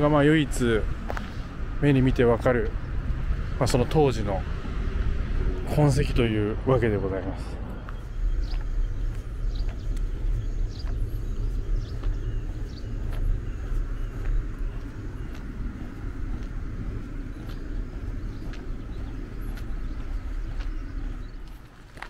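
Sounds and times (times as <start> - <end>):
wind rumbling on microphone: 0.0 - 22.0
faint bird chirps: 7.3 - 16.0.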